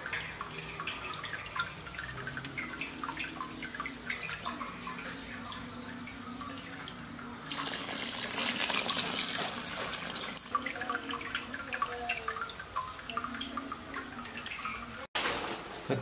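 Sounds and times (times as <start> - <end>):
liquid trickling and dripping: 0.0 - 15.1
water pouring over grain: 7.4 - 11.3.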